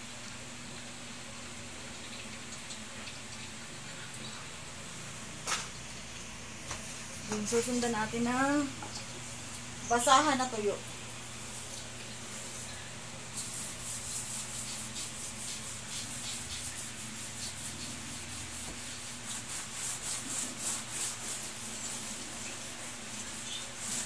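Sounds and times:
steel wool scrubbing floor: 13.4 - 24.0.

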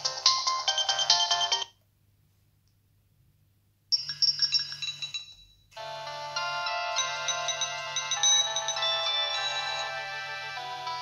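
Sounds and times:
polyphonic phone ringtones: 0.0 - 1.7, 4.0 - 11.0.

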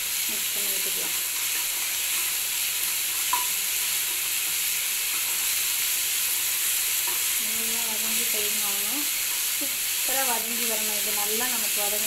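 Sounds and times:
onions sizzling in hot oil: 0.0 - 12.0.

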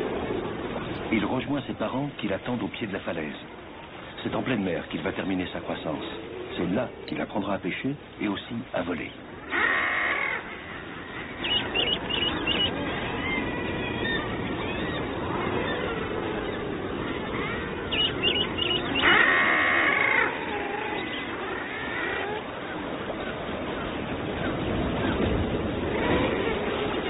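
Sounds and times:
sea washing: 0.0 - 27.0
seabird harsh call: 9.4 - 25.3
high bird chirps: 11.4 - 15.0, 17.9 - 19.2.

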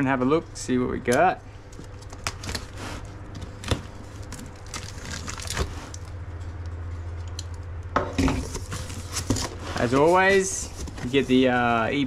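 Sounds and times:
plastic crinkling: 1.7 - 6.2
tape ripping: 1.9 - 6.1.

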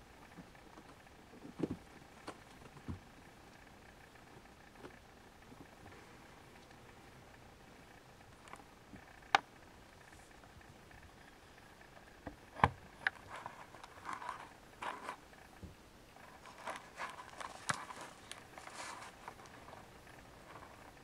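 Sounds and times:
kittens rustling on carpet: 16.2 - 21.0.

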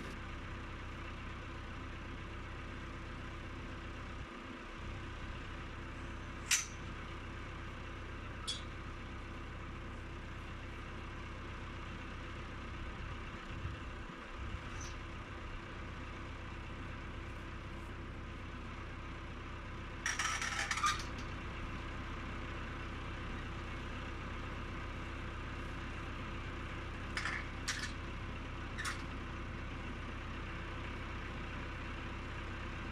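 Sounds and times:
tractor engine idling: 0.0 - 32.9
rattling metal clatter: 27.1 - 28.0
metal clanks: 27.2 - 28.0.

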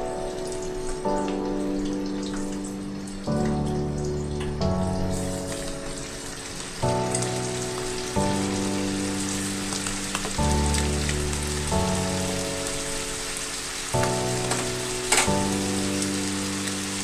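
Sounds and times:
slow sustained chords music: 0.0 - 17.0
meat and vegetables sizzling in a pan: 5.0 - 17.0.

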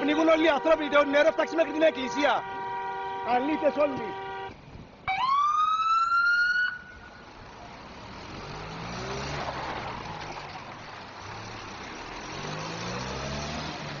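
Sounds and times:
vehicle engines running slowly: 6.9 - 14.0.

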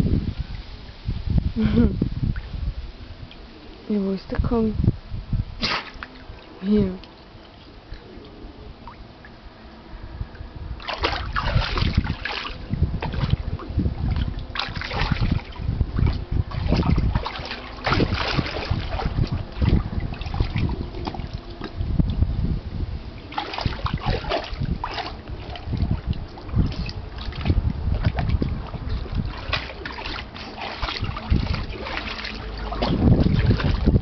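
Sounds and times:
heavy low thumps: 10.6 - 34.0
dog splashing in water: 10.8 - 13.4, 14.1 - 21.5, 23.2 - 34.0.

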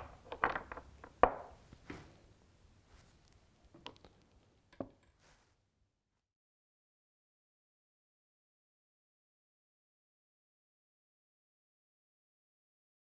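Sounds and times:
chess pieces knocking on board: 0.0 - 1.6.

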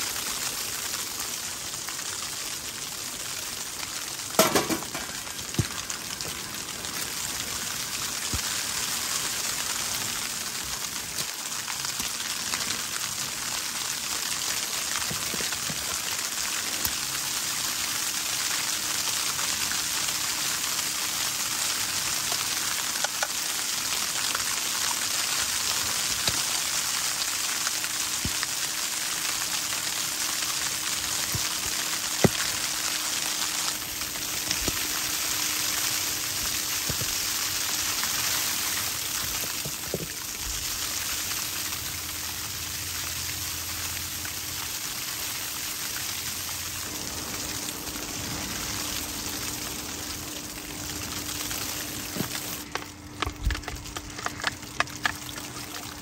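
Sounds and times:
wind hissing over tent fabric: 23.8 - 52.8.

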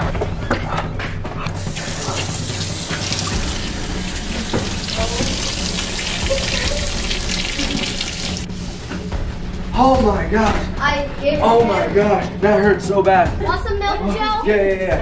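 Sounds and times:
faucet sprayer water rushing: 1.6 - 8.5.

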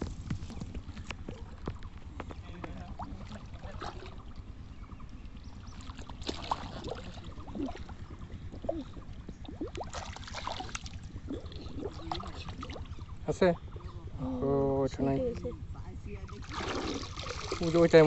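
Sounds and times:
pond water sloshing and splashing: 2.7 - 13.8, 16.1 - 18.0.

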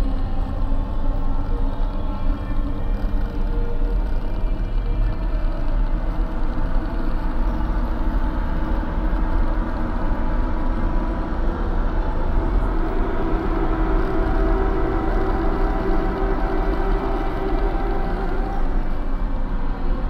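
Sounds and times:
low rumbling drone: 0.0 - 20.0.

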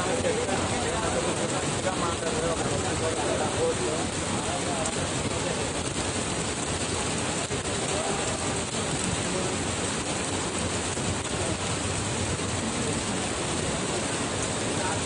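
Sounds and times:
heavy rain on ground: 0.0 - 15.0.

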